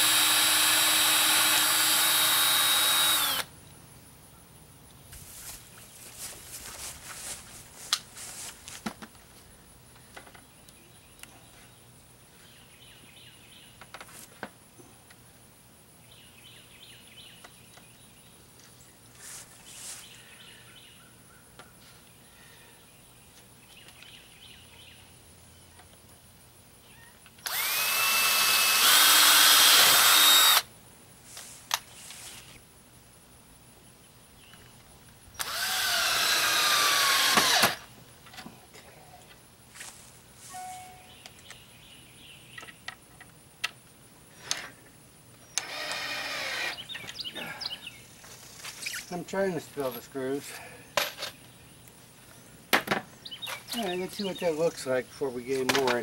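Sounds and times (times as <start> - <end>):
cordless drill whining: 0.0 - 3.5, 27.4 - 30.7, 35.4 - 37.8, 45.6 - 46.8.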